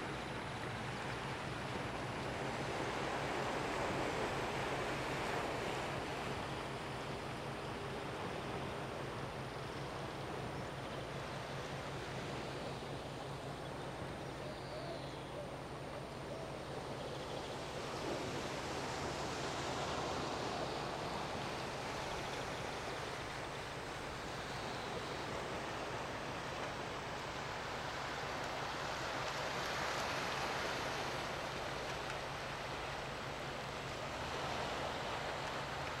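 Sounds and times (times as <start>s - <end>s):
sea: 0.0s - 36.0s
wind: 0.0s - 36.0s.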